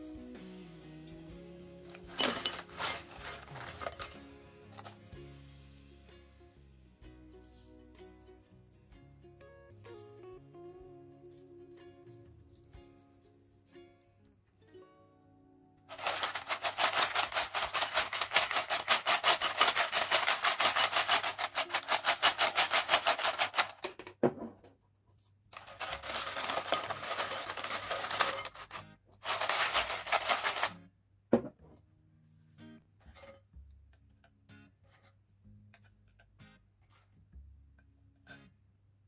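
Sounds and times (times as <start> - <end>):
chips rattling in glass bowl: 1.9 - 5.0, 15.9 - 24.0, 25.6 - 30.7.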